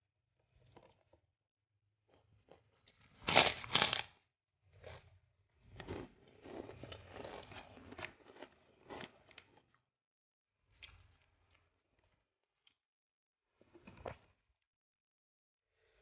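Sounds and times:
chewing crunchy food: 2.2s - 4.2s, 4.8s - 9.8s, 10.7s - 12.8s.

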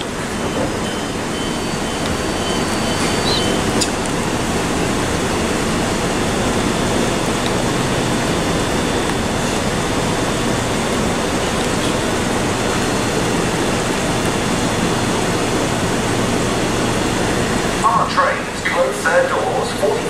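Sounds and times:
steady rushing noise: 0.0s - 20.0s
faint high chirp: 2.4s - 3.6s.

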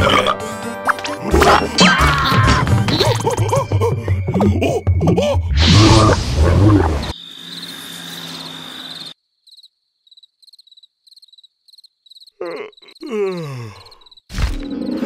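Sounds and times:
cricket chirping: 7.0s - 15.0s.

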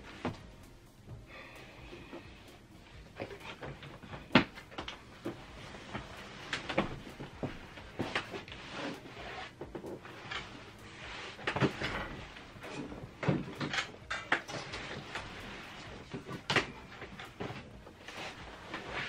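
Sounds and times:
fabric rustling: 0.0s - 19.0s
sofa bed frame knocking: 1.9s - 8.5s.

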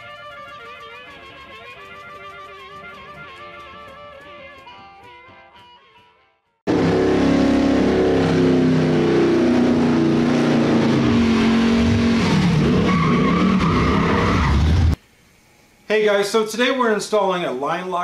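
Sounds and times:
truck engine at high revs: 6.7s - 15.0s
tyres squealing on pavement: 12.6s - 14.8s.

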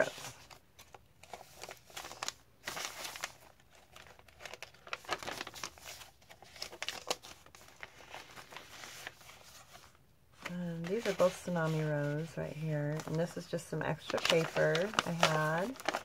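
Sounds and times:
paper rustling and crinkling: 0.0s - 16.0s.

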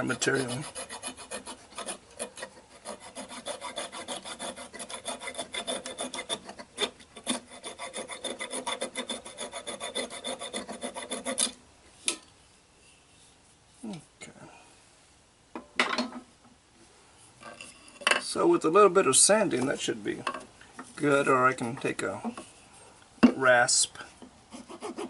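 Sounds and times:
coping saw cutting wood: 0.0s - 11.5s, 24.5s - 25.0s.

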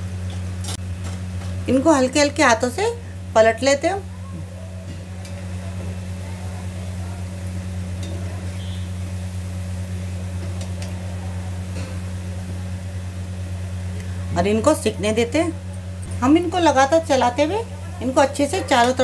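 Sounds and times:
low hum: 0.0s - 19.0s
food deep-frying in oil: 4.8s - 19.0s.

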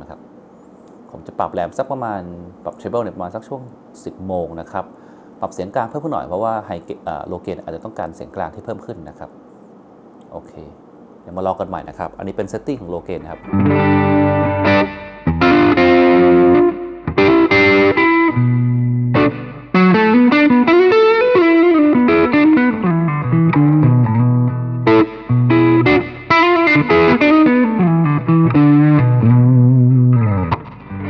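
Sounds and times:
distorted electric guitar: 13.4s - 31.0s.

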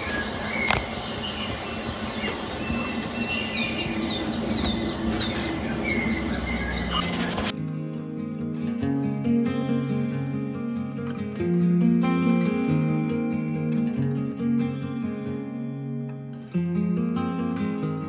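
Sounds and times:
birds chirping: 0.0s - 7.5s
steady rushing hiss: 0.0s - 7.6s
gentle acoustic guitar music: 0.0s - 18.0s.

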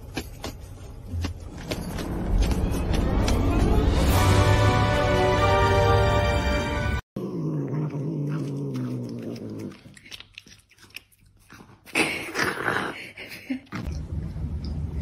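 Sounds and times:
cat growling: 7.2s - 10.6s.

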